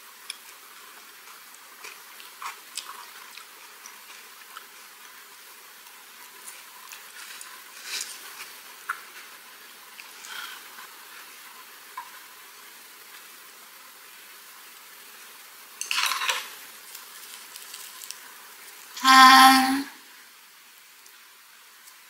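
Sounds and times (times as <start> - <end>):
seaweed wrap crinkling: 15.9 - 18.3.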